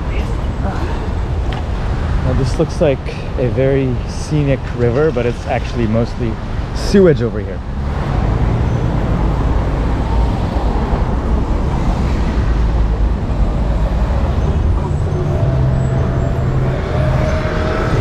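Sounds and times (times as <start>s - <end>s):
traffic rumble: 0.0s - 18.0s
pitched engine hum: 7.6s - 18.0s.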